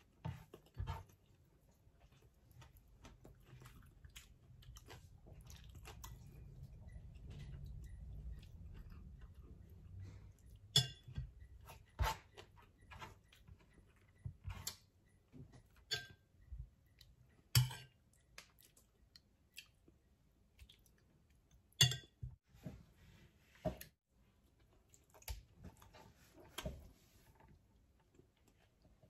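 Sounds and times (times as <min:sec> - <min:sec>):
chewing and mouth sounds: 0:00.5 - 0:10.7, 0:18.1 - 0:21.7, 0:24.5 - 0:25.9
spoon clinking on glass bowl: 0:21.8 - 0:22.2.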